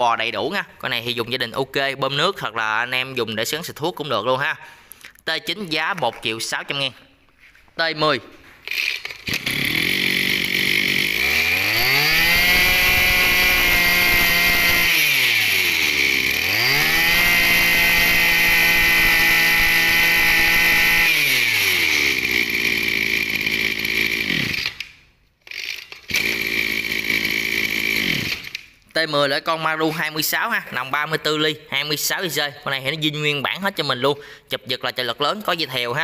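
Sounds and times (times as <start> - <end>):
brush cutter engine revving: 8.6 - 28.6.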